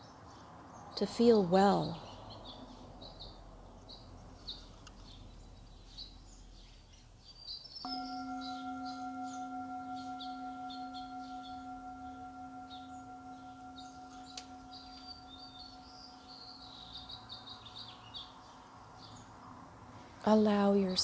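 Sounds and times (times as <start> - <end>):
birds chirping: 0.0 - 19.6
singing bowl ringing: 7.9 - 18.4.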